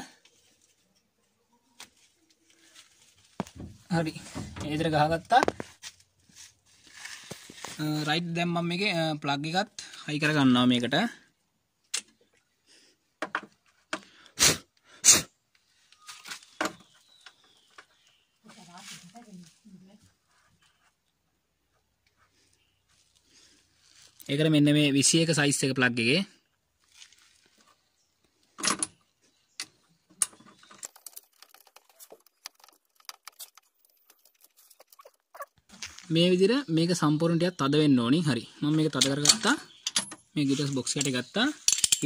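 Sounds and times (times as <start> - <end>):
tools clicking and knocking: 13.2 - 14.0, 39.0 - 40.3, 40.9 - 42.0.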